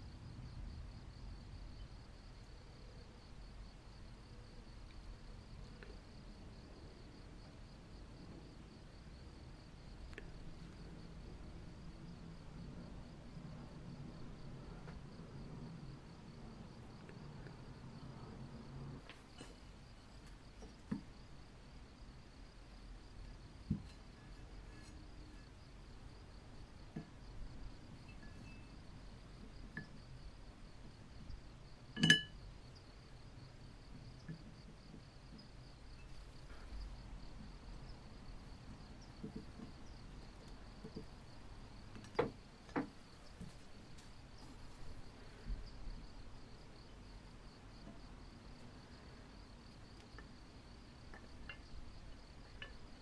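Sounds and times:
faint ticks and rustles: 18.9 - 53.0
ringing metallic clink: 32.0 - 32.4.

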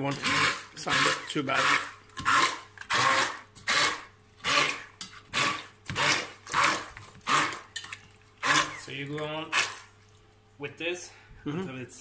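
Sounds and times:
immersion blender pulsing: 0.1 - 7.7, 8.4 - 9.9.

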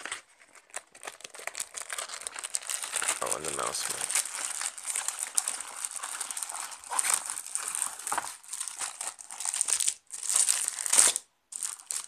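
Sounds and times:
packaging crinkling: 0.0 - 12.0.

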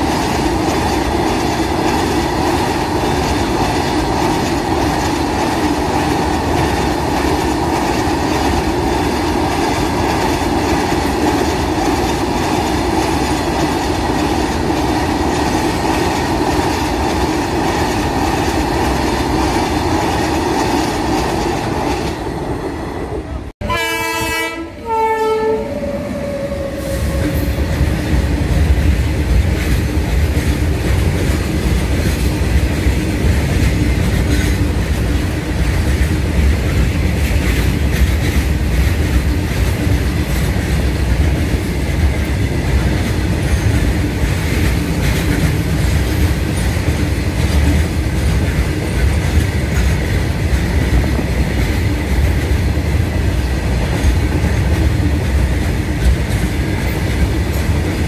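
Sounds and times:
freight train rumbling past: 0.0 - 58.0
wheels clacking on rails: 0.0 - 58.0
train horn blasts: 23.6 - 27.6.

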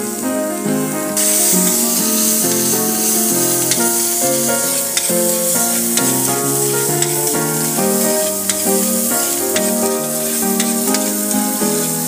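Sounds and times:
background music with melody: 0.0 - 12.0
vegetables sizzling in a wok: 0.0 - 12.0
utensil clicking against pan: 3.6 - 4.0, 4.9 - 11.2.

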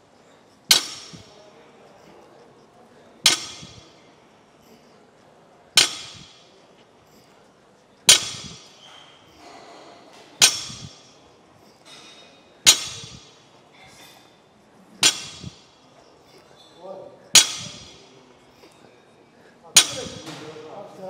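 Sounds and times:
barbell clacking on floor: 3.3 - 3.9, 5.8 - 6.5, 8.1 - 8.9, 10.3 - 11.2, 12.7 - 13.4, 15.0 - 15.8.

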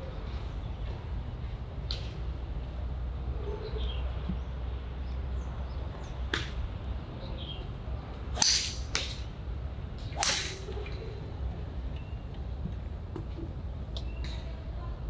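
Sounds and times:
golf clubs striking balls: 6.3 - 6.6, 8.3 - 9.3, 10.0 - 11.0.

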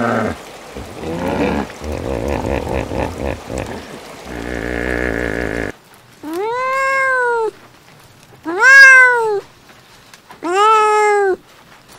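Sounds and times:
hippopotamus grunting and honking: 0.0 - 5.8.

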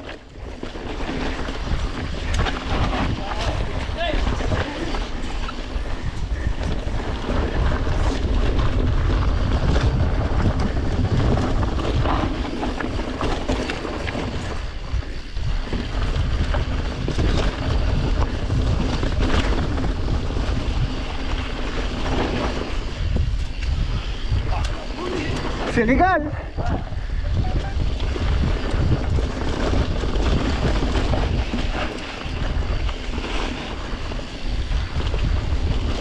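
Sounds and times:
bike clicks and rattles: 0.0 - 36.0
bike tyre rumble on trail: 0.0 - 36.0
wind rushing over microphone: 0.0 - 36.0.

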